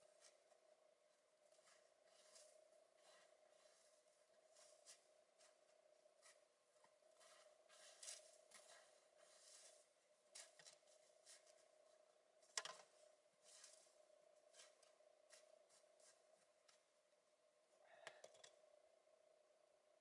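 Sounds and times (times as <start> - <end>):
faint steady hum: 0.0 - 20.0
boots shuffling in snow: 1.5 - 5.6, 7.2 - 11.6, 13.4 - 13.9.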